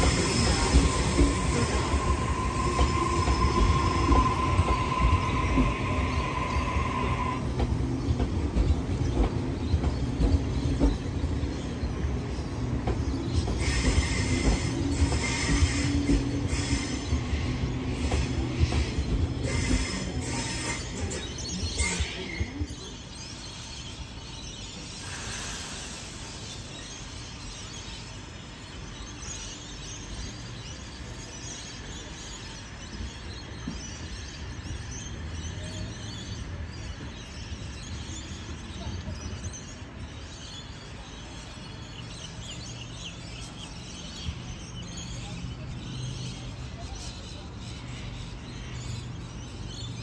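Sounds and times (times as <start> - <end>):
departing train wheel noise: 0.0 - 23.1
approaching train rumble: 0.0 - 50.0.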